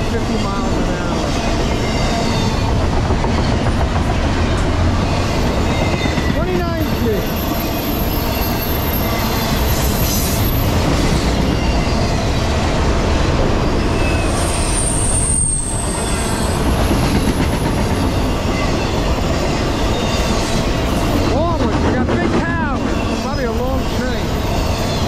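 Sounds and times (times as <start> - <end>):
train wheels rumbling on rail: 0.0 - 25.0
high-pitched wheel squeals: 7.3 - 12.4, 13.6 - 17.4.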